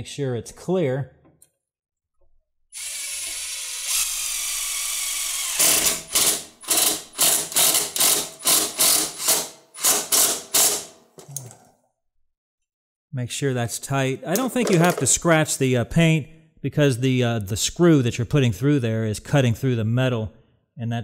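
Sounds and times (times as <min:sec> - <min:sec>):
drill driving screw into metal: 0:02.8 - 0:11.0.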